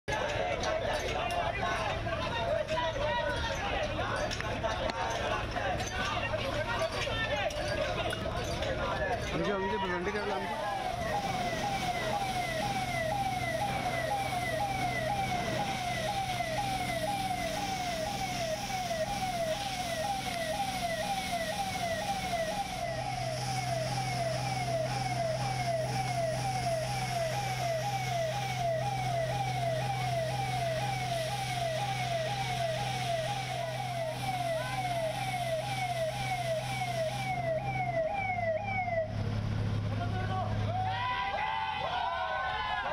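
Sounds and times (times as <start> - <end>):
electronic siren yelp: 9.3 - 39.5
steady low hum: 10.3 - 40.0.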